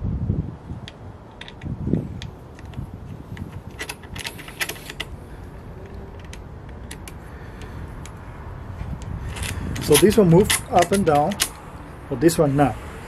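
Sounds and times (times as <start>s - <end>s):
metal clamp clicking and clattering: 1.3s - 5.2s, 9.0s - 11.6s.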